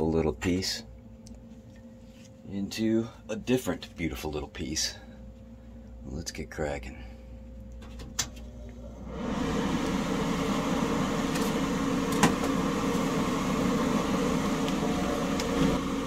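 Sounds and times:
gas torch rushing: 9.0s - 16.0s.

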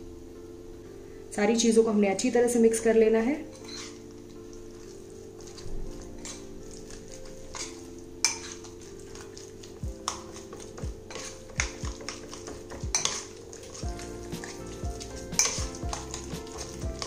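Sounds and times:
spoon clinking against bowl: 3.5s - 4.0s, 6.2s - 9.2s, 10.0s - 17.0s
spoon stirring mince in bowl: 3.5s - 17.0s.

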